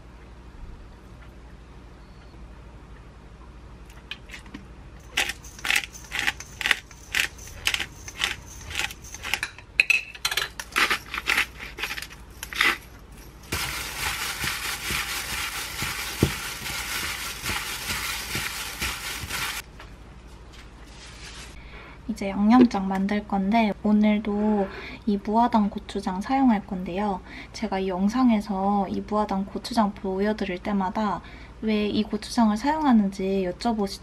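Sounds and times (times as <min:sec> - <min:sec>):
spice grinder crunching peppercorns: 0:05.0 - 0:09.6, 0:10.5 - 0:19.6
gloved hand mixing raw chicken: 0:13.5 - 0:19.6.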